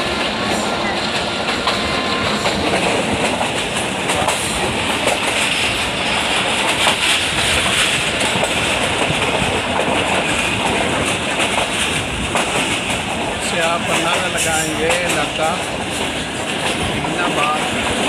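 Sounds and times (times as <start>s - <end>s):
train carriages rumbling: 0.0s - 18.0s
wheels clicking over rail joints: 0.2s - 18.0s.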